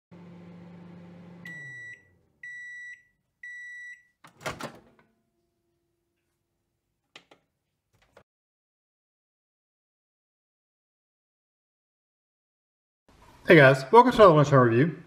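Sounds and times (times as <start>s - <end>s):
microwave oven humming: 0.1s - 5.6s
microwave beeps: 1.0s - 4.2s.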